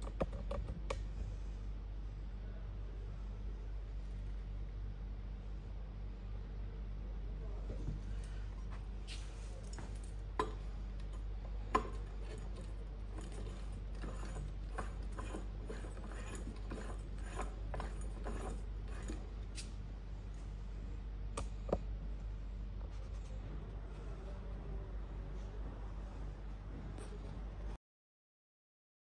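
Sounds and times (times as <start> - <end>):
metal clicks and scraping: 9.7 - 19.7.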